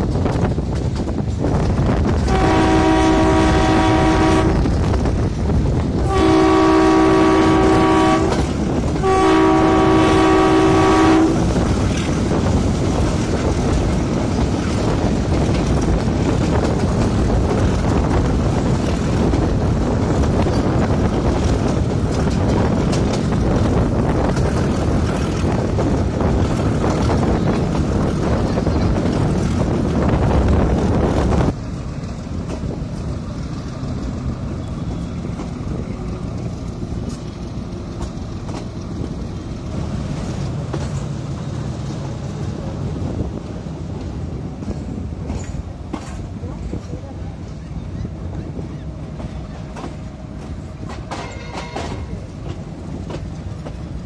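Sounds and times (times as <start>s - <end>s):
train running on track: 0.0s - 54.0s
locomotive horn blasts: 2.2s - 4.7s, 6.0s - 11.5s.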